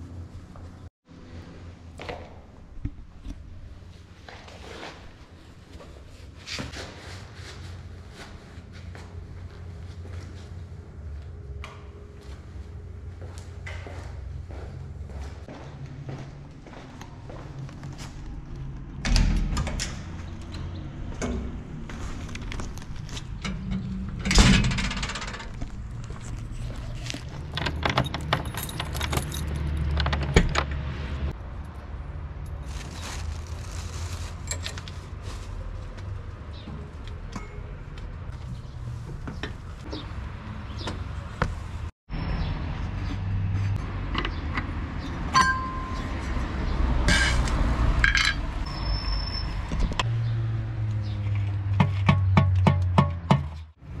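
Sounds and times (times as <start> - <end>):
keys jangling: 27.2 - 30.4.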